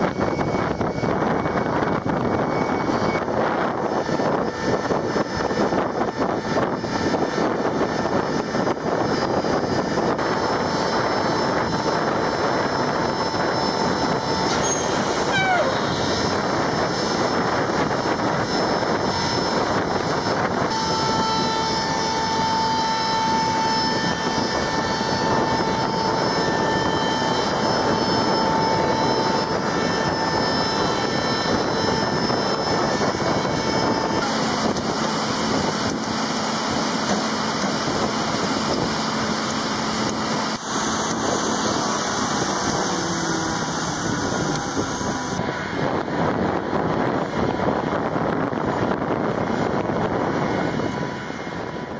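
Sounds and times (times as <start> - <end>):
thin high whine: 0.0 - 46.2
ground equipment engines running: 0.0 - 51.9
falling whistle: 14.5 - 16.2.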